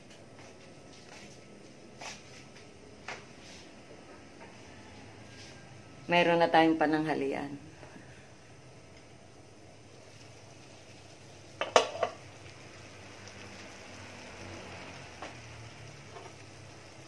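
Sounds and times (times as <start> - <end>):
faint steady hiss: 0.0 - 17.0
metal cookware clattering: 11.6 - 12.2.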